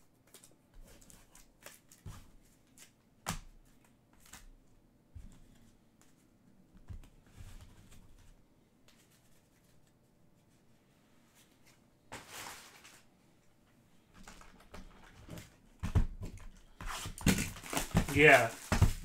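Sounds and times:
cardboard rustle: 16.8s - 19.0s.

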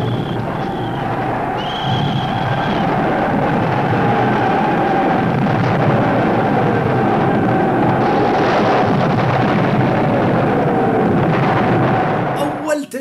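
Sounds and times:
falling whistles of incoming shells: 0.0s - 4.7s
artillery fire and explosions: 0.0s - 12.6s.

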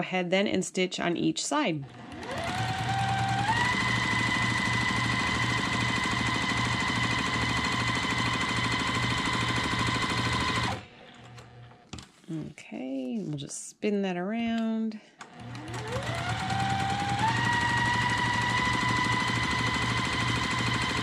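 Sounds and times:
sewing machine stitching: 1.8s - 11.6s, 15.2s - 21.0s.

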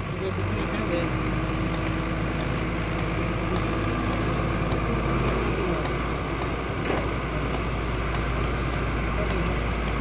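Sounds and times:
diesel engine running: 0.0s - 10.0s.

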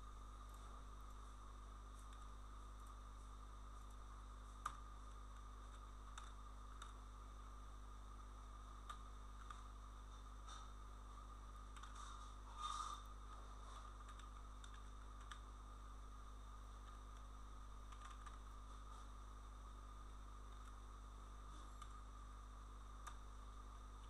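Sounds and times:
faint electrical hum: 0.0s - 24.0s
keyboard and mouse clicks: 4.6s - 7.0s, 8.8s - 9.7s, 11.7s - 12.2s, 13.8s - 15.5s, 17.9s - 18.9s, 23.0s - 23.2s.

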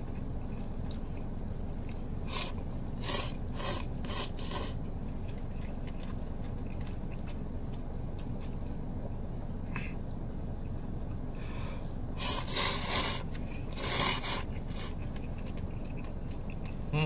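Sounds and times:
steady low hum: 0.0s - 17.0s
man slurping noodles: 2.3s - 4.8s, 12.2s - 14.9s.

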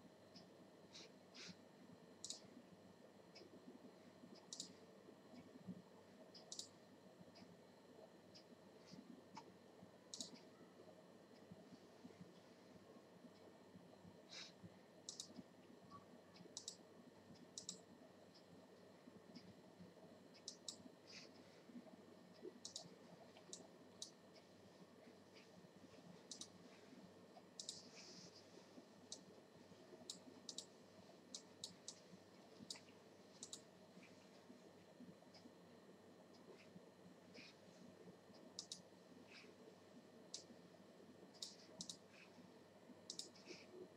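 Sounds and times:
computer mouse clicks: 2.2s - 2.6s, 4.3s - 7.5s, 10.1s - 10.5s, 14.3s - 18.5s, 20.3s - 21.3s, 22.4s - 24.5s, 26.2s - 26.6s, 27.4s - 28.2s, 29.1s - 29.3s, 29.9s - 33.7s, 38.3s - 39.5s, 40.3s - 40.6s, 41.3s - 42.3s, 43.1s - 43.8s.

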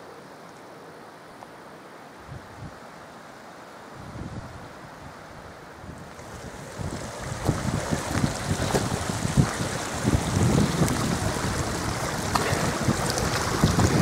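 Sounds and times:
steady rushing hiss: 0.0s - 14.0s
wind buffeting microphone: 5.8s - 14.0s.

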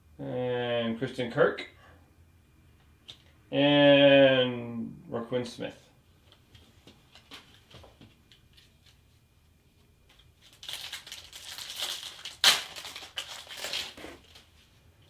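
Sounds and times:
wrapper crinkling and tearing: 10.4s - 14.5s
sharp rip of wrapper: 10.6s - 14.4s.

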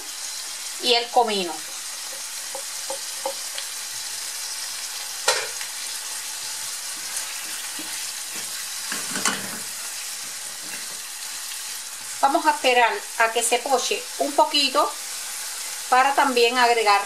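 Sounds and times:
food sizzling in a frying pan: 0.0s - 17.0s
spatula scraping pan: 6.8s - 11.3s.

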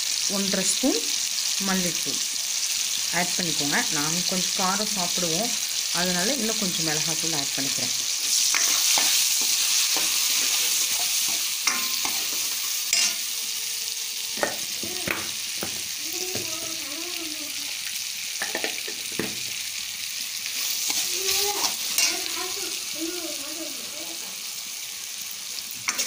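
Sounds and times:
food sizzling in hot oil: 0.0s - 26.0s
steel spoon scraping a pan: 8.1s - 14.8s, 20.5s - 22.4s.

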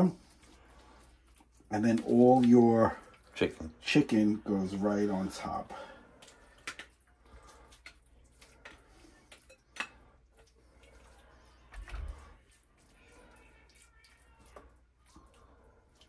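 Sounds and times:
spoon clinking and scraping dish: 7.7s - 11.0s.

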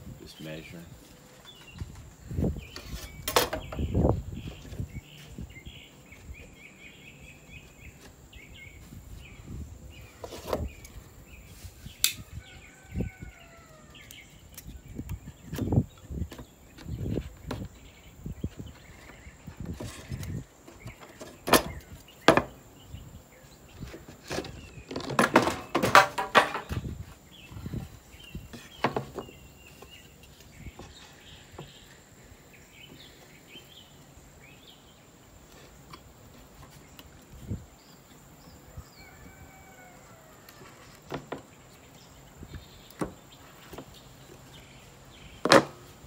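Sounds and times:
wooden boards knocking: 24.3s - 26.9s, 28.8s - 29.3s.

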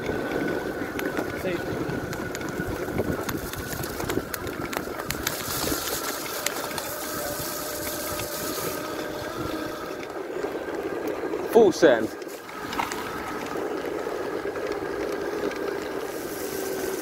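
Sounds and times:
wind noise on microphone: 0.0s - 10.0s
electric motor whining: 0.0s - 17.0s
tyres rolling on wet gravel: 0.0s - 17.0s.

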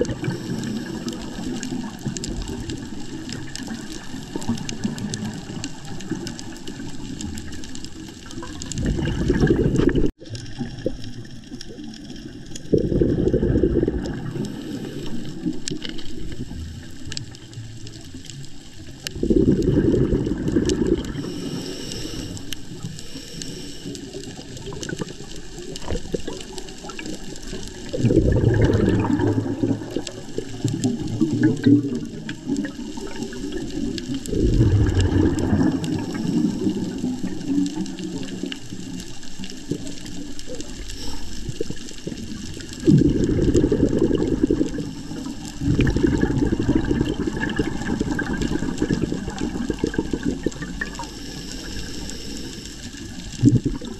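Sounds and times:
bubbling rushes of exhaled air: 0.0s - 53.9s
regulator hiss: 21.2s - 24.2s, 50.9s - 53.2s.

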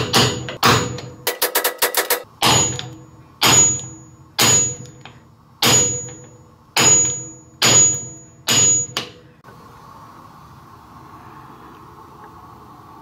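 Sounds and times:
hammer striking metal socket: 0.0s - 9.2s.

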